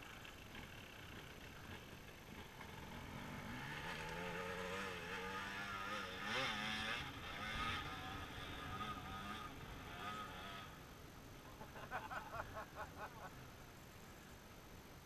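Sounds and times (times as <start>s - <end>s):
dirt bike engine revving: 0.5s - 10.8s.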